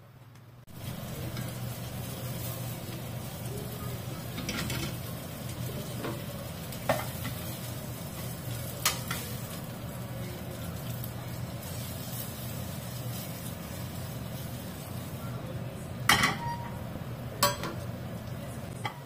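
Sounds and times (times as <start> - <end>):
frying pans sizzling: 0.0 - 19.0
tongs clicking on pan: 8.8 - 9.4.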